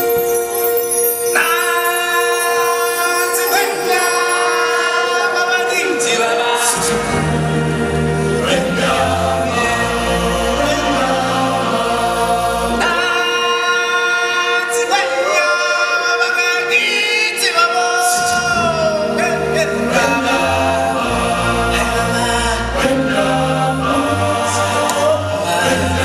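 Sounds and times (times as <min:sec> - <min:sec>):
band playing: 0:00.0 - 0:06.1
choir singing held notes: 0:00.0 - 0:15.8, 0:18.0 - 0:26.0.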